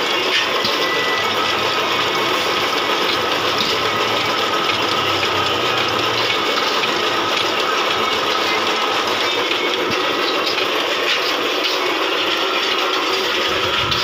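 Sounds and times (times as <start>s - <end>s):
rice roasting in hot sand: 0.0s - 14.0s.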